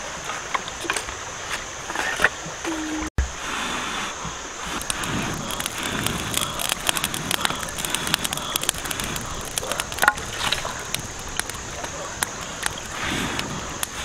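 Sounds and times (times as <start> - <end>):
campfire crackling: 0.0 - 14.0
person blowing on fire: 2.9 - 11.2, 12.3 - 14.0.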